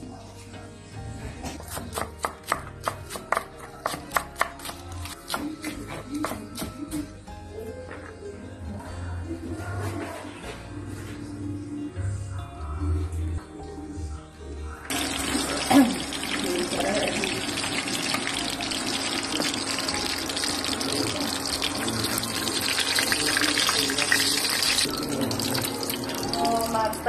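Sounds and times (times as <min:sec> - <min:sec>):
fish sizzling in hot oil: 0:14.9 - 0:26.8.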